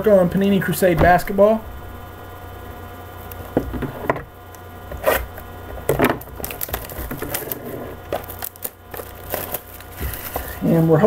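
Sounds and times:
steady low hum: 0:00.0 - 0:11.0
wrapping crackles and taps: 0:05.4 - 0:11.0.

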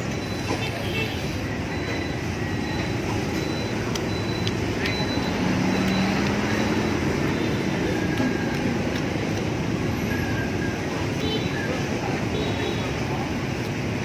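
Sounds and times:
street traffic noise: 0:00.0 - 0:14.0.

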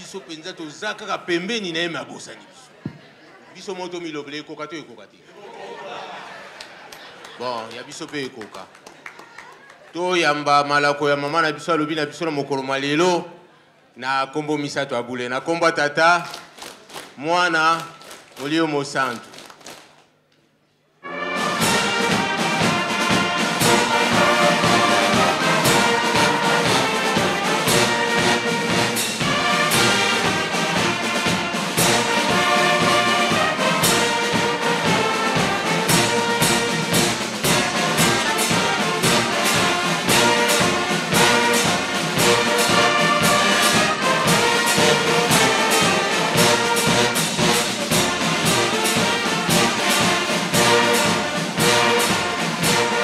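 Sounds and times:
brass band playing: 0:21.0 - 0:53.0
steady drum beat: 0:21.2 - 0:53.0.

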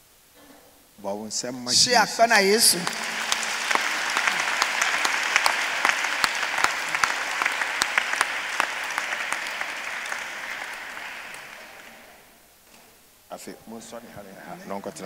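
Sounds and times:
crowd applauding: 0:01.7 - 0:12.3.

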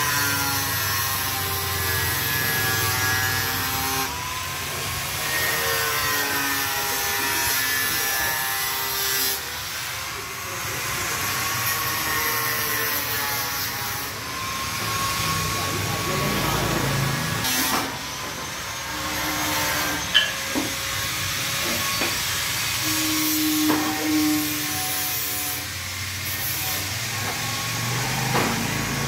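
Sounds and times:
electric power tool whining: 0:26.4 - 0:29.0.

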